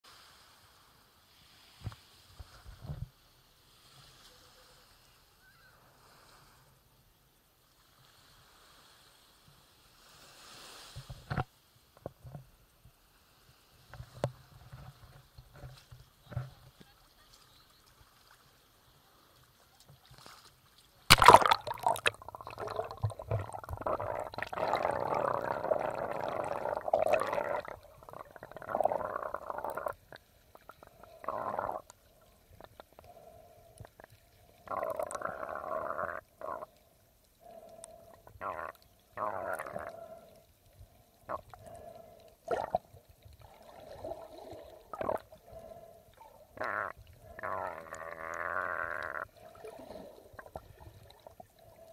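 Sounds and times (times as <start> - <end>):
muffled water sloshing: 21.1 - 34.6.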